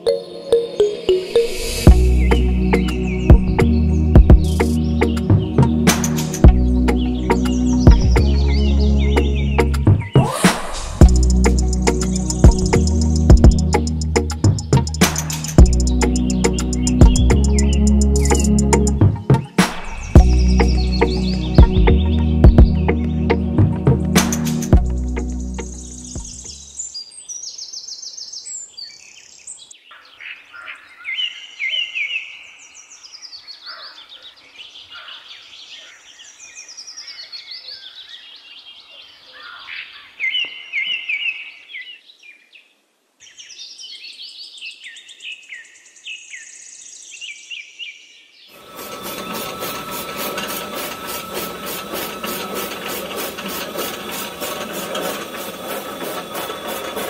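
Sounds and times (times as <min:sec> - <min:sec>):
birds chirping and singing: 0:00.0 - 0:42.6
small electric motor rattling: 0:48.6 - 0:57.0.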